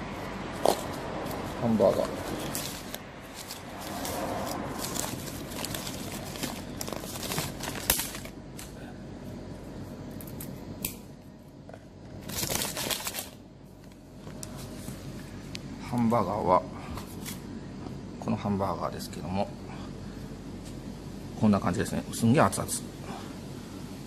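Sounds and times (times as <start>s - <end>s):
paper wrapping crinkling: 0.6s - 8.7s, 12.2s - 14.8s.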